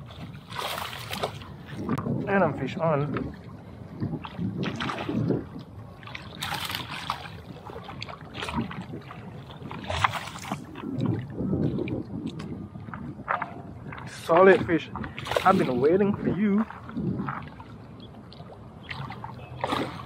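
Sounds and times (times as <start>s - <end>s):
fish thrashing and splashing water: 0.0s - 1.6s, 4.1s - 11.9s, 13.9s - 20.0s.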